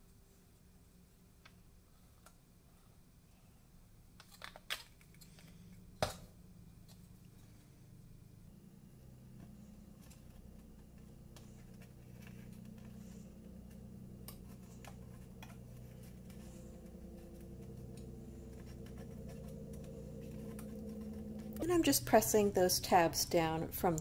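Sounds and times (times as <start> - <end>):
steady low hum: 4.8 - 24.0.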